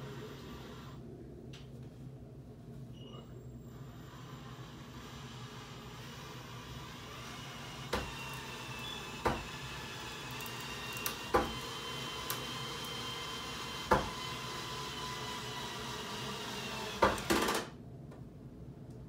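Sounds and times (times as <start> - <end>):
steady background hum: 0.0 - 19.0
knocks on wood: 9.2 - 9.5, 13.9 - 14.2.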